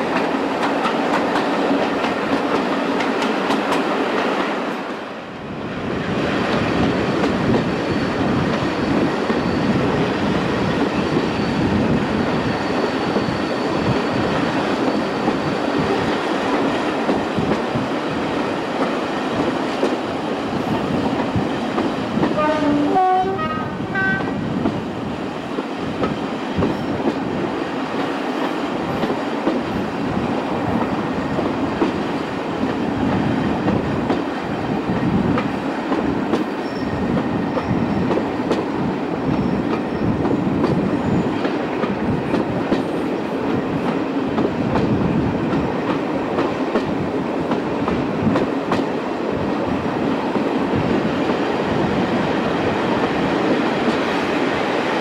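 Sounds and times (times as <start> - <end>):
train rumbling on track: 0.0 - 55.0
locomotive horn: 22.4 - 24.4.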